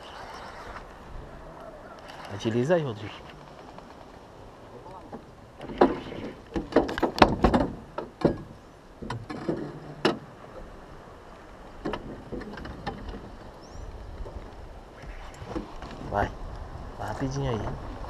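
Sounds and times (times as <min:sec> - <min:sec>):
knocks and slaps on boat hull: 0:05.0 - 0:10.3, 0:11.8 - 0:13.3.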